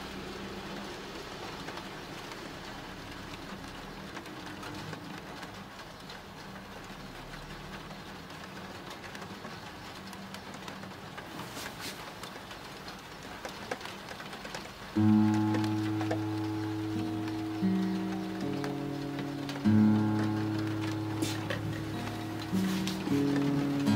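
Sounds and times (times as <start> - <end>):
steady rain falling: 0.0 - 23.9.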